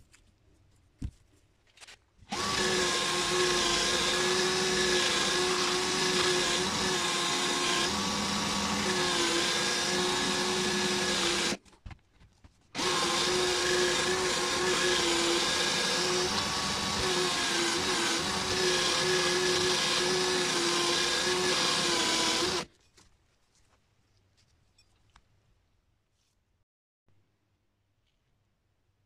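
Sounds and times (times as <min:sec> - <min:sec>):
cordless drill motor: 0:02.3 - 0:11.6, 0:12.8 - 0:22.7.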